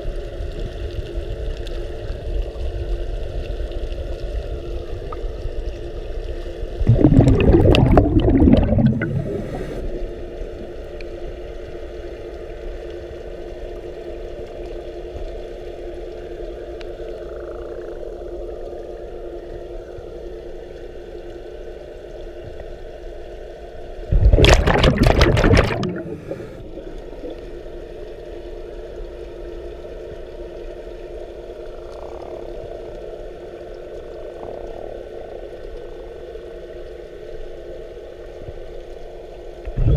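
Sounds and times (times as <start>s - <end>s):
steady underwater hum: 0.0s - 39.9s
regulator bubbles rushing: 6.8s - 10.2s, 24.0s - 27.3s, 39.7s - 39.9s.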